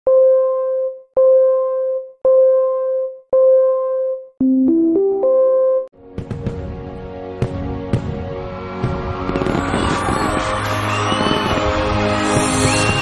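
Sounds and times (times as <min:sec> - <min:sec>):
electronic keyboard notes: 0:00.1 - 0:06.0
crackling fireworks sound effect: 0:06.0 - 0:13.0.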